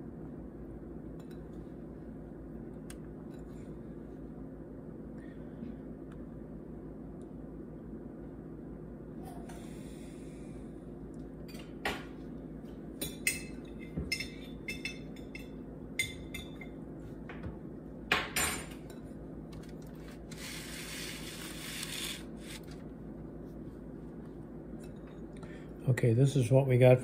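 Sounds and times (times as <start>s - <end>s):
utensil clinking on glass bowl: 13.0s - 16.8s.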